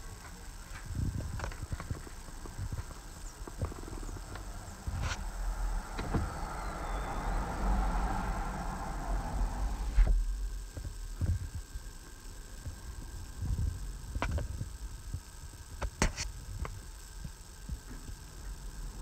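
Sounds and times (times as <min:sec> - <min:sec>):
faint steady hum: 0:00.0 - 0:19.0
low thumps: 0:00.8 - 0:11.7.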